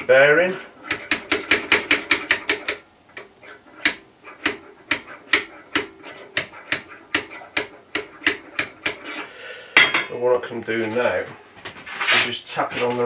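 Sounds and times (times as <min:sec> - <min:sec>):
metal-on-metal taps: 0:00.8 - 0:09.2, 0:09.8 - 0:10.1.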